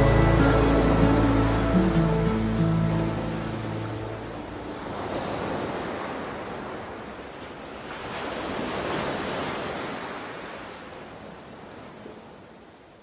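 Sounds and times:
ocean surf washing onto shore: 0:00.0 - 0:12.5.

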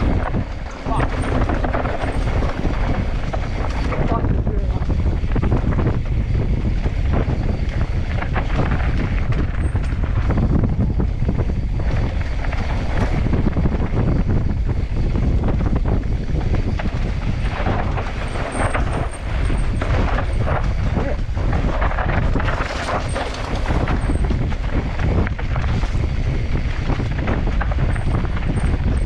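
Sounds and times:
bike rattling and knocking: 0:00.0 - 0:29.0
wind buffeting microphone: 0:00.0 - 0:29.0
tyres on dirt: 0:14.8 - 0:29.0.

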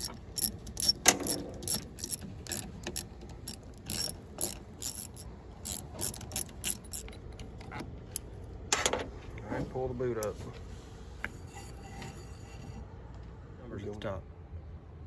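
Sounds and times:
socket ratchet clicking: 0:00.0 - 0:08.3.

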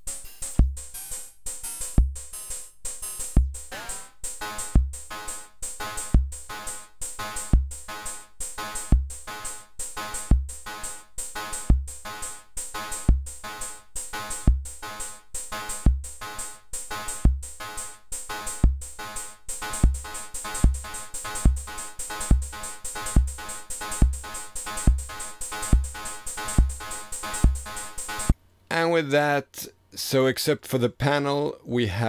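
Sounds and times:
deep kick drum: 0:00.6 - 0:00.9, 0:02.0 - 0:02.3, 0:03.4 - 0:03.8, 0:04.7 - 0:05.1, 0:06.1 - 0:06.5, 0:07.5 - 0:07.9, 0:08.9 - 0:09.3, 0:10.3 - 0:10.6, 0:11.6 - 0:12.0, 0:13.1 - 0:13.4, 0:14.4 - 0:14.8, 0:15.8 - 0:16.2, 0:17.2 - 0:17.6, 0:18.6 - 0:19.0, 0:19.8 - 0:23.4, 0:24.0 - 0:24.3, 0:24.9 - 0:27.8.

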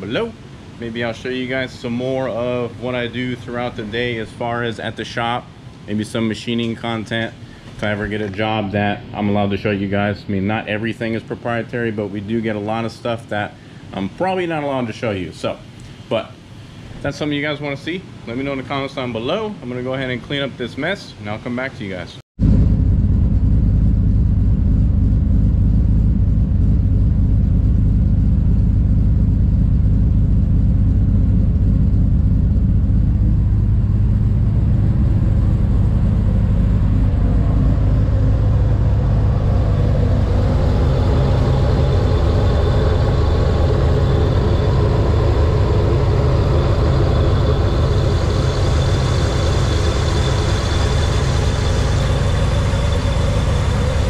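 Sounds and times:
thin high whine: 0:00.0 - 0:13.3, 0:22.4 - 0:54.0
engine idling: 0:22.4 - 0:54.0.

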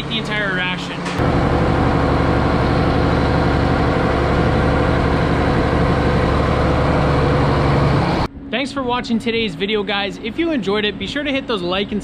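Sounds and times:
tractor diesel engine running: 0:00.0 - 0:08.3.

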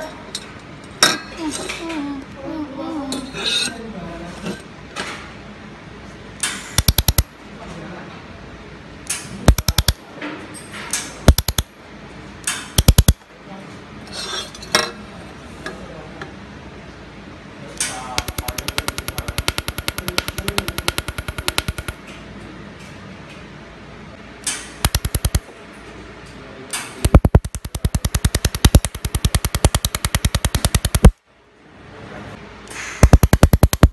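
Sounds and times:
laser welder crackling: 0:06.8 - 0:07.3, 0:09.5 - 0:10.0, 0:11.3 - 0:11.7, 0:12.8 - 0:13.2, 0:18.2 - 0:22.0, 0:24.8 - 0:25.5, 0:27.0 - 0:31.2, 0:32.9 - 0:33.9.

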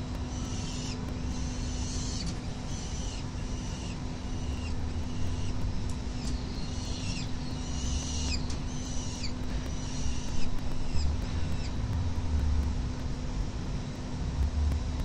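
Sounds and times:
falcon chicks begging calls: 0:00.4 - 0:05.6, 0:06.2 - 0:11.8
low rumble: 0:10.4 - 0:15.0.

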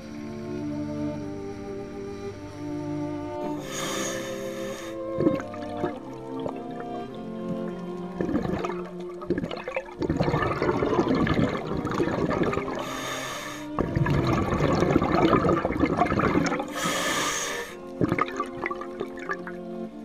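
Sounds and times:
hissing regulator inhalation: 0:03.3 - 0:18.2
diver exhaling bubbles underwater: 0:05.0 - 0:19.6.

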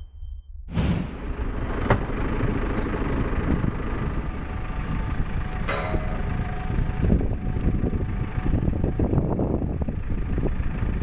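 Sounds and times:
brief sharp sound: 0:00.7 - 0:01.4
diesel engine rumbling: 0:00.7 - 0:11.0.

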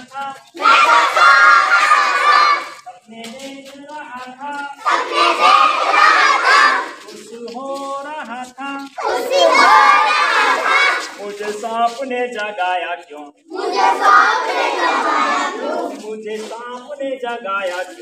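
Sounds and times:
children shouting together: 0:00.6 - 0:02.8, 0:04.8 - 0:07.0, 0:09.0 - 0:11.1, 0:13.6 - 0:16.0.

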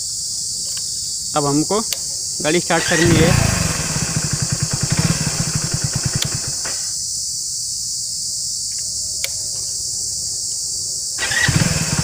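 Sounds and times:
crickets chirping: 0:00.0 - 0:12.0
motorcycle engine idling: 0:02.4 - 0:07.0, 0:11.2 - 0:12.0.

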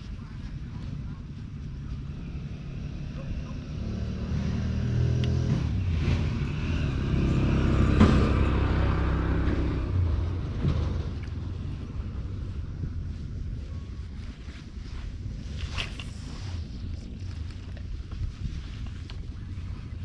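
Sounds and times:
motor engine passing: 0:01.2 - 0:13.3.

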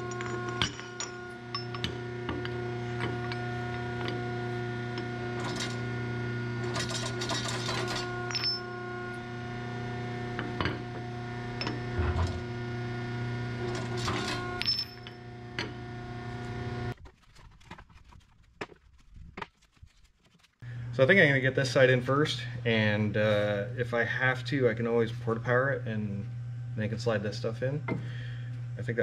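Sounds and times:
steel parts clinking and knocking: 0:00.0 - 0:03.4
electric pump motor humming: 0:00.0 - 0:17.0.

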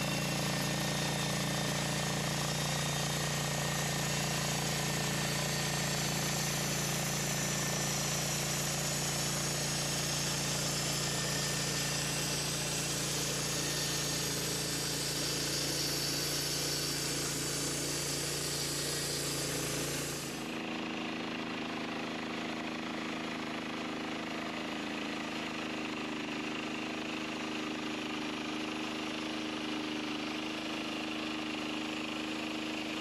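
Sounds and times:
band saw blade hissing through wood: 0:00.0 - 0:20.5
gas engine running under load: 0:00.0 - 0:29.0.

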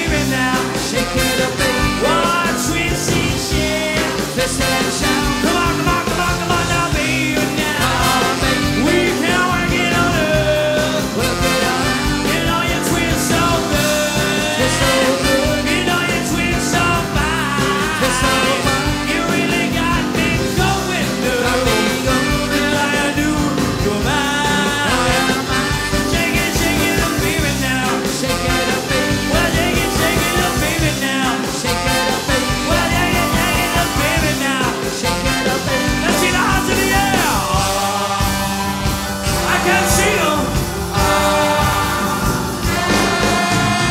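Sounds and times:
swing band playing: 0:00.0 - 0:43.9.

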